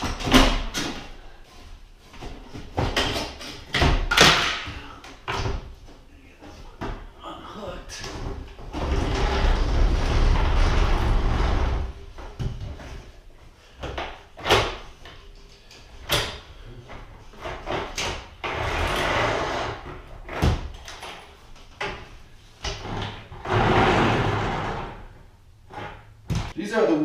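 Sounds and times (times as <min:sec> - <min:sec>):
window sash scraping: 0:08.6 - 0:12.0, 0:22.7 - 0:26.0.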